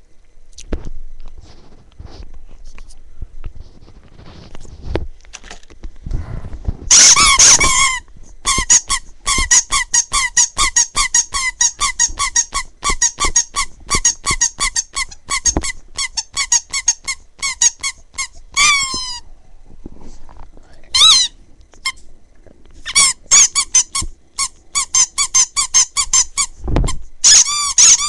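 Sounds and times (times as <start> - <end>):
rubber squeaky toy squeaking: 6.9 - 19.2, 20.9 - 22.0, 22.8 - 28.0.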